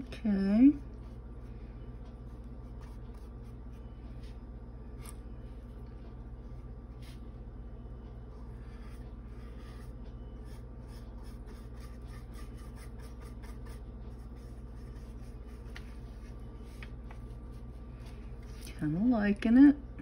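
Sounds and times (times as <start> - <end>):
low hum: 0.0 - 19.1.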